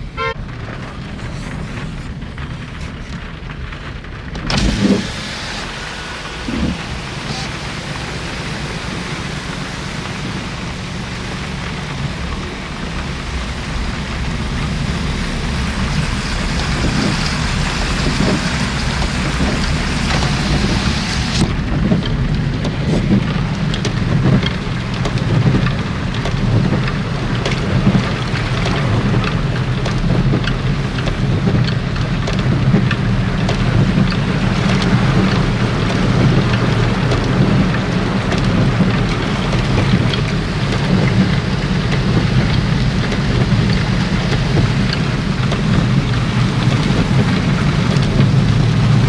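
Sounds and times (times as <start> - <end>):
car driving through water: 0.0 - 49.0
low engine rumble: 0.0 - 49.0
rain hiss: 0.1 - 22.0.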